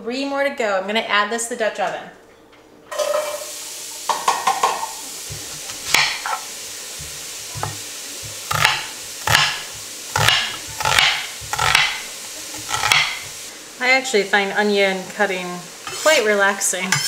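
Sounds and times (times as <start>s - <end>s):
onions sizzling in a pot: 2.9s - 17.0s
knife chopping onion on a board: 5.2s - 6.4s, 7.0s - 13.4s.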